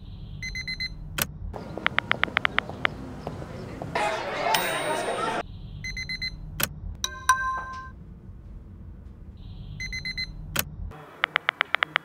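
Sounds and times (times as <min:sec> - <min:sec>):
phone alarm beeping: 0:00.1 - 0:01.0, 0:01.6 - 0:03.2, 0:04.4 - 0:06.5, 0:09.4 - 0:10.4
phone click: 0:01.8 - 0:03.0.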